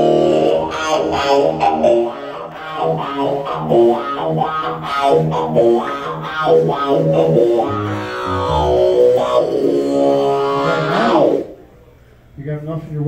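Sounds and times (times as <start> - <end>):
electric guitar picked notes: 5.3 - 11.1
low bass notes: 7.6 - 9.6.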